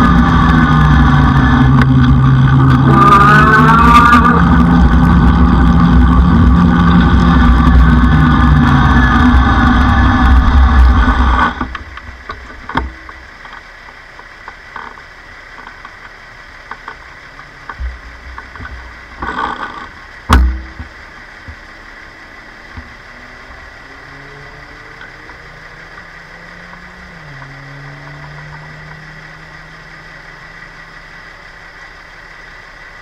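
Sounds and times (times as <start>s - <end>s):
wind and road rushing: 0.0s - 31.5s
sharp bang: 20.3s - 21.0s.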